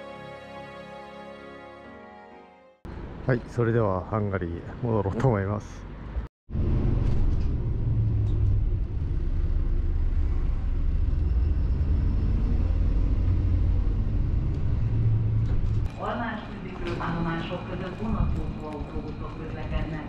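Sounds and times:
bus engine low rumble: 4.6s - 20.0s.

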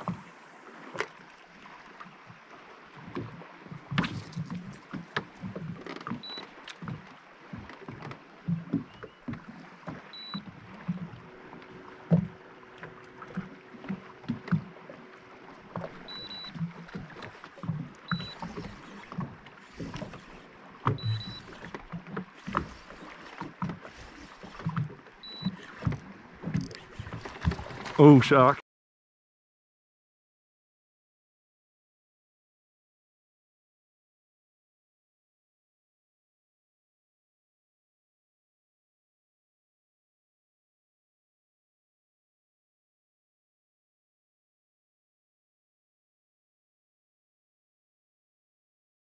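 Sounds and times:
waves lapping against boat hull: 0.0s - 28.6s
short high beeps: 10.1s - 10.4s, 16.1s - 16.6s, 18.1s - 18.5s, 21.0s - 21.5s, 25.2s - 25.6s.

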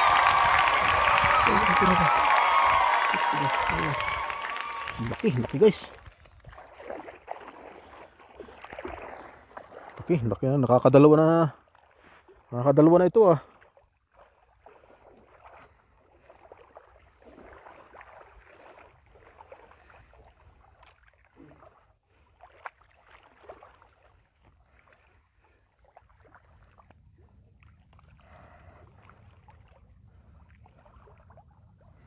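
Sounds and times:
small water splashes: 0.0s - 32.0s
water sloshing: 4.8s - 12.6s, 13.4s - 32.0s.

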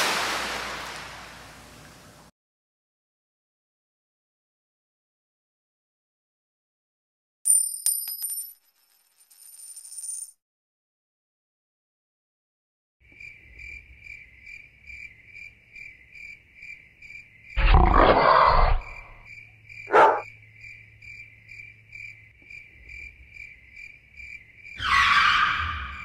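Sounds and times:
crickets chirping: 13.0s - 24.9s
animal calls: 17.6s - 19.2s, 19.9s - 20.2s.

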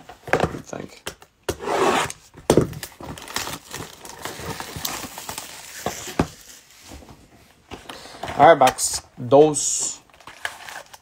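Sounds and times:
plastic wrap tearing and crinkling: 2.6s - 6.7s.

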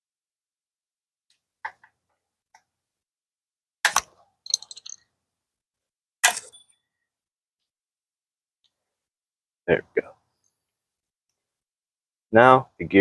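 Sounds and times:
metal tool clicking: 3.9s - 5.0s.

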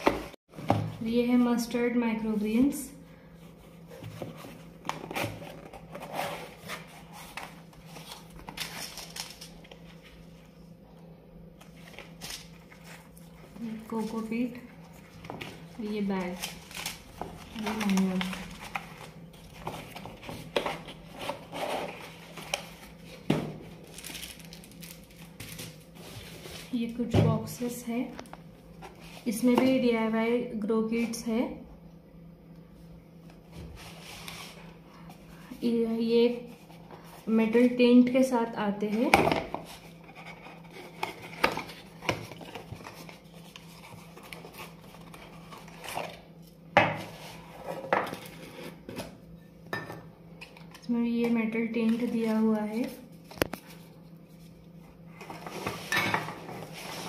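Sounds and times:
cardboard and paper rustling: 3.4s - 10.4s, 11.6s - 27.7s, 39.5s - 49.2s
cardboard scraping and rustling: 3.7s - 9.4s.

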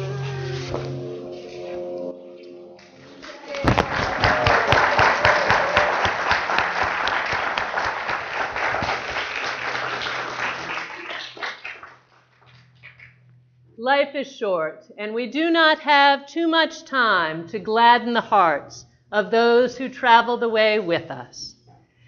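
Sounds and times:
crowd applauding: 2.8s - 13.0s.

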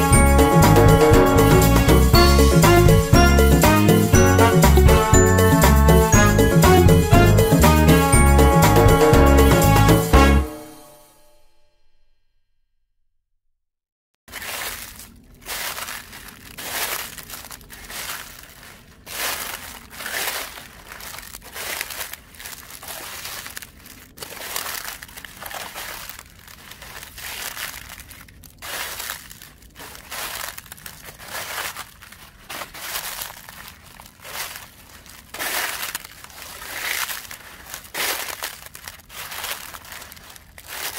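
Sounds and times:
footsteps crunching dry leaves: 14.3s - 40.9s.

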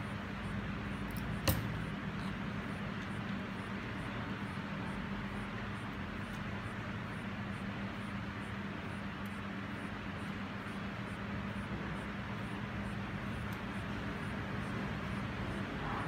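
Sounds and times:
background hum and hiss: 0.0s - 16.0s
sharp tap: 1.4s - 1.7s.

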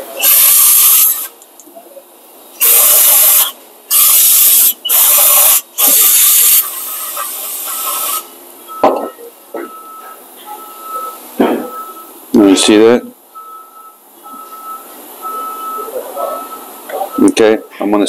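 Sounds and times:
aerosol can spraying: 2.6s - 8.3s.

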